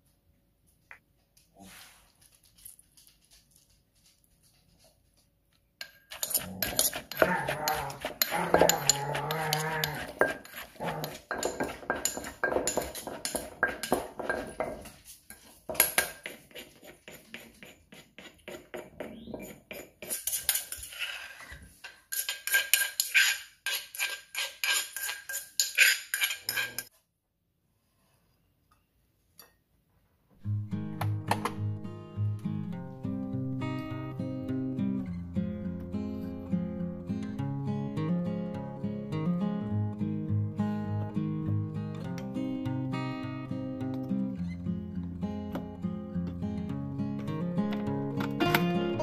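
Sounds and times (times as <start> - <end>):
spoon scraping and knocking mortar: 5.8 - 26.9
pestle pounding in a clay mortar: 6.1 - 14.8.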